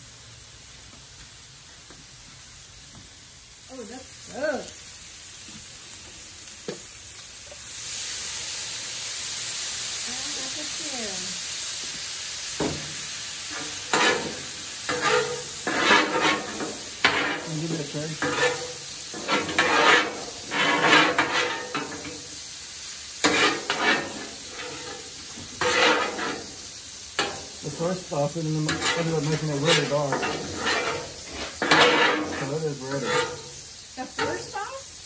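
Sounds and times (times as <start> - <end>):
food sizzling on hot plate: 0.0 - 35.0
metal spatulas scraping griddle: 13.5 - 22.3, 23.2 - 33.6, 34.2 - 34.6.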